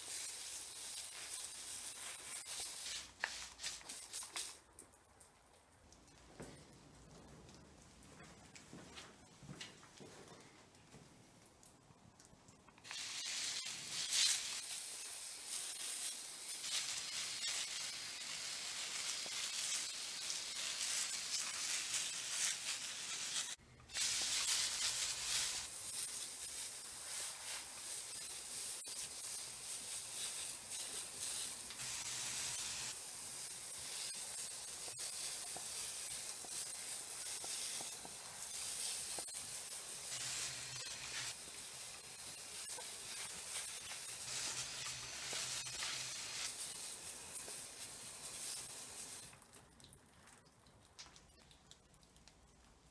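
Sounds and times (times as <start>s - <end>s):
garden sprayer hissing: 0.0s - 4.6s, 12.8s - 49.3s.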